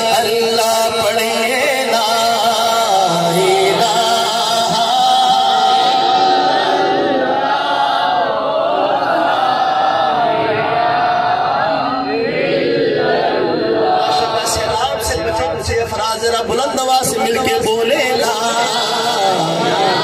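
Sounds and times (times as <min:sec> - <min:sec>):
man singing through loudspeakers: 0:00.0 - 0:08.0, 0:13.6 - 0:20.0.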